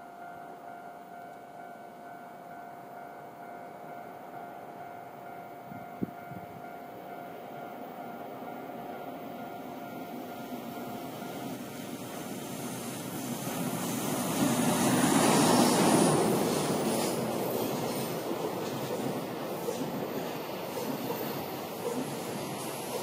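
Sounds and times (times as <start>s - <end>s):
level crossing warning bell: 0.0s - 11.6s
freight train rumble: 3.9s - 23.0s.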